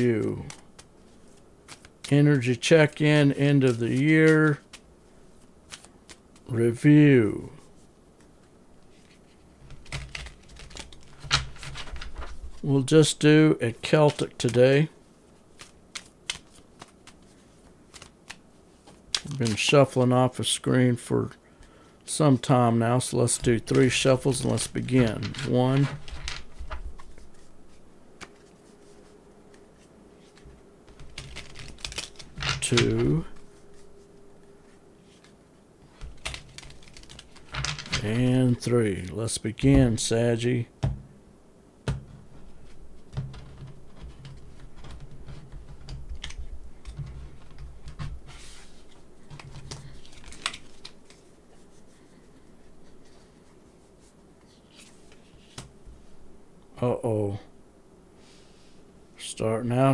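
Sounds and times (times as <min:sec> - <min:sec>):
cards being shuffled: 0:00.0 - 0:06.5, 0:07.7 - 0:13.0, 0:13.7 - 0:14.6, 0:15.5 - 0:20.1, 0:23.2 - 0:38.4, 0:42.4 - 0:56.0.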